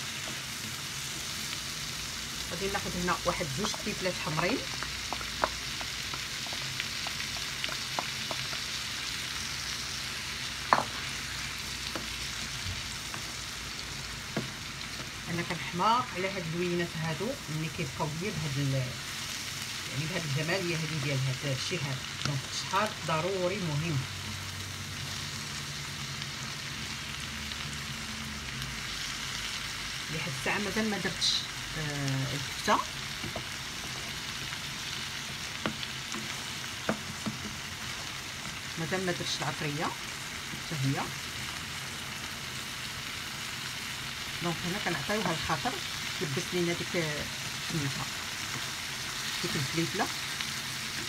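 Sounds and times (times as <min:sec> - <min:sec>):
small crackles: 0:00.0 - 0:15.3, 0:31.3 - 0:38.9
vegetables sizzling in a pan: 0:00.0 - 0:51.0
wooden spoon knocking on pan: 0:03.6 - 0:08.7, 0:10.7 - 0:11.0, 0:14.3 - 0:14.6, 0:33.2 - 0:33.5, 0:35.6 - 0:37.6.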